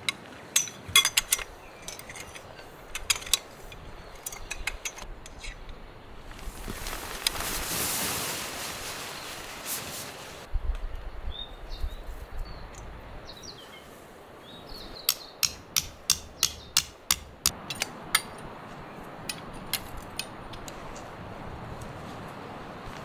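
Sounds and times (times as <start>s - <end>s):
bird chirping: 11.1s - 15.6s
hammer striking tent peg: 15.1s - 18.4s.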